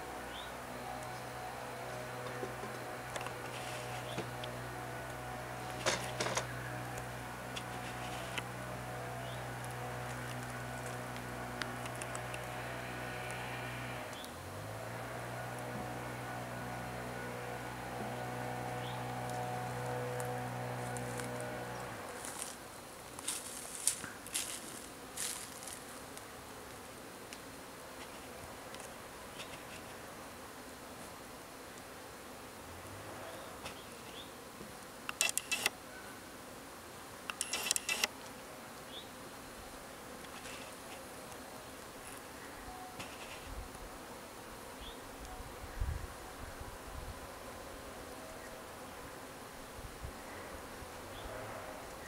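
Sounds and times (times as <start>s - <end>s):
low hum: 0.0s - 22.7s
bees buzzing: 0.0s - 52.0s.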